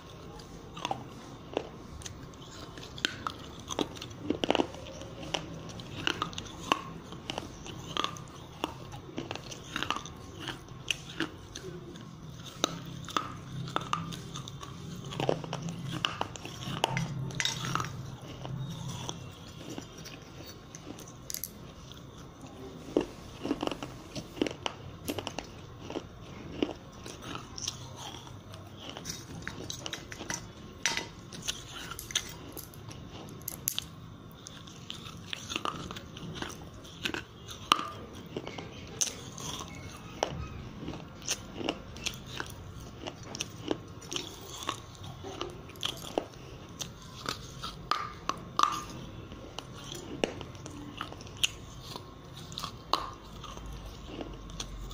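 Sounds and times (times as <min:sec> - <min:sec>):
crunching and chewing clay pieces: 0:00.0 - 0:54.9.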